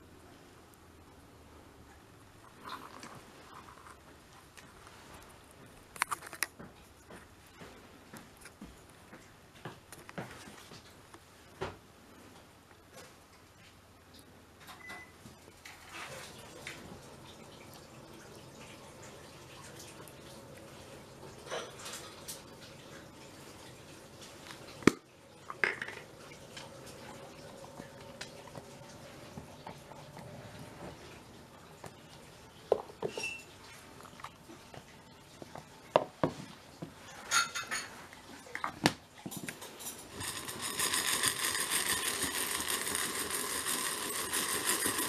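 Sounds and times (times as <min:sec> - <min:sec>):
dry kibble rattling: 0:02.4 - 0:06.6, 0:39.8 - 0:45.0
metal bowls clinking: 0:39.7 - 0:45.0.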